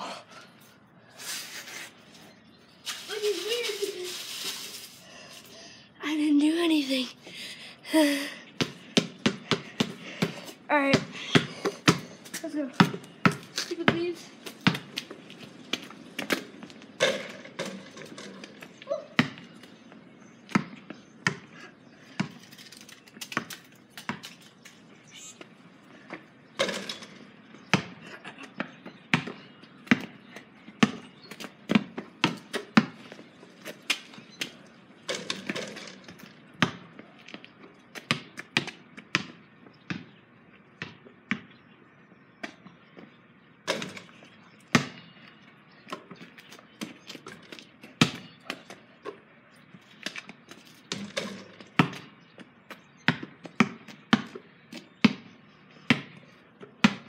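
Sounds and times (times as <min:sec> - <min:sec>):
basketball bouncing on concrete: 0:08.6 - 0:22.5, 0:23.2 - 0:24.4, 0:26.1 - 0:28.0, 0:28.6 - 0:40.2, 0:40.8 - 0:41.6, 0:43.6 - 0:45.2, 0:45.8 - 0:49.2, 0:50.0 - 0:57.0.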